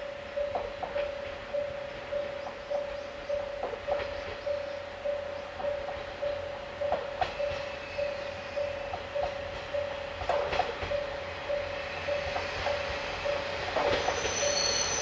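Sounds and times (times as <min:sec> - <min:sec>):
level crossing warning bell: 0:00.0 - 0:03.7, 0:04.5 - 0:15.0
diesel train approaching: 0:00.0 - 0:15.0
train wheels clacking over rail joints: 0:05.6 - 0:15.0.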